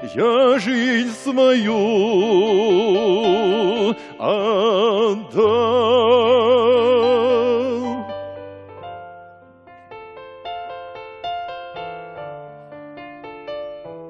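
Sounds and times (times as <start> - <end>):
man singing with vibrato: 0.0 - 8.2
instrumental backing music: 0.0 - 14.0.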